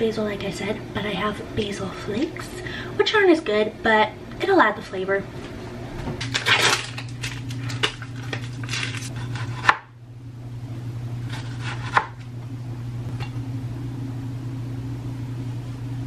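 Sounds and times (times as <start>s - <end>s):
steady low hum: 0.0s - 16.0s
knife slicing tomato: 9.0s - 9.9s, 11.2s - 12.2s.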